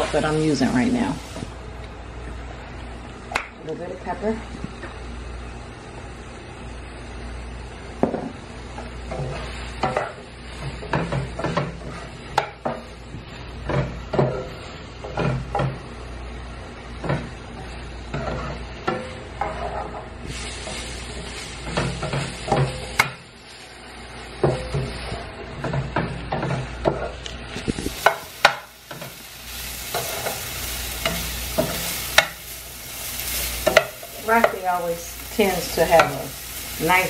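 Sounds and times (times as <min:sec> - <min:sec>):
vegetables sizzling in frying pan: 0:00.0 - 0:37.0
utensil scraping pan: 0:17.0 - 0:23.1, 0:24.4 - 0:37.0.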